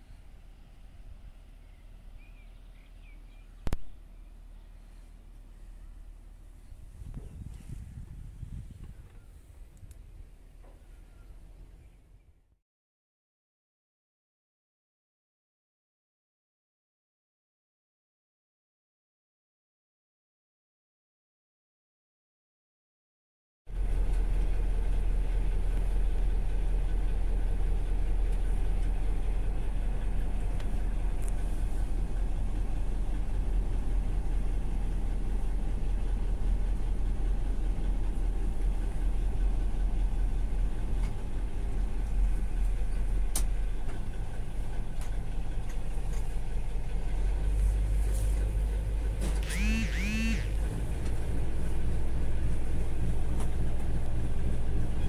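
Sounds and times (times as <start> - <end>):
boat engine drone: 23.7 - 55.0.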